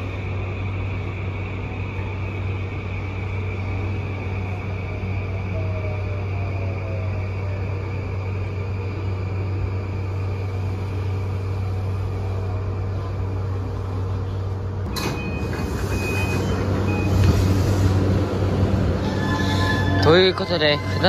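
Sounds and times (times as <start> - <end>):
train electrical hum: 0.0 - 21.0
train doors opening: 8.4 - 21.0.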